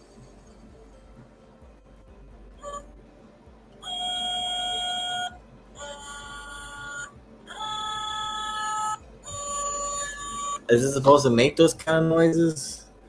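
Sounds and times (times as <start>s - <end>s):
toy electronic tones: 2.6s - 2.9s, 3.8s - 11.1s.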